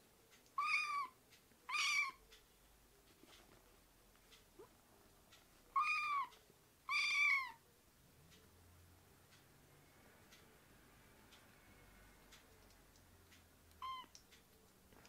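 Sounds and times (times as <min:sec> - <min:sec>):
kitten meowing: 0:00.6 - 0:02.2, 0:05.7 - 0:06.3, 0:06.9 - 0:07.6, 0:13.8 - 0:14.2.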